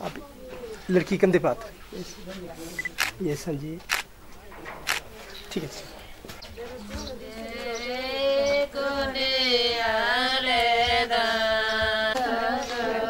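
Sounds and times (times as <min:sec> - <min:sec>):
person singing chant-like melody: 0:06.6 - 0:13.0.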